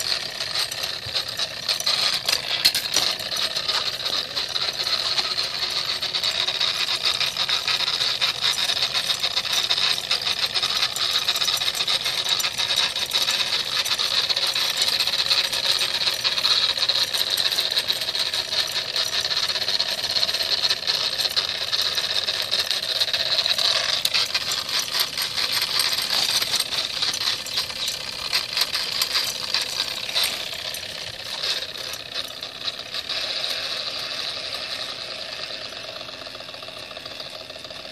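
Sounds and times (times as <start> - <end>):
toy steam engine chuffing: 0.0 - 37.9.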